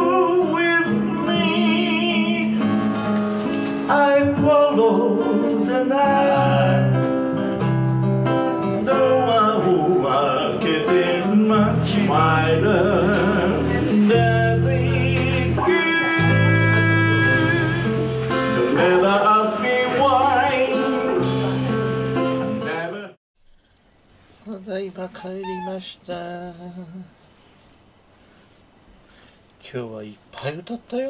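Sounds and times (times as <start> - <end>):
man singing: 0.0 - 2.8, 3.9 - 7.1, 8.8 - 23.2, 24.4 - 27.2
classical guitar: 0.2 - 23.0.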